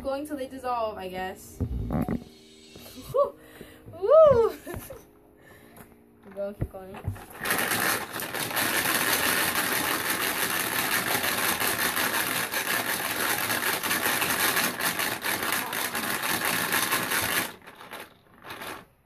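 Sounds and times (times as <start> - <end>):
plastic shaker rattling and clicking: 7.0 - 19.0.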